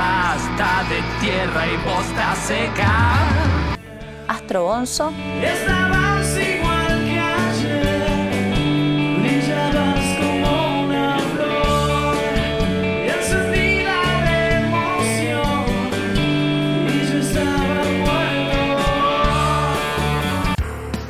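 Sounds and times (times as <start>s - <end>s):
person singing: 0.0s - 4.4s, 5.2s - 21.0s
electric guitars: 0.0s - 20.6s
bass: 0.0s - 21.0s
drums: 0.0s - 21.0s.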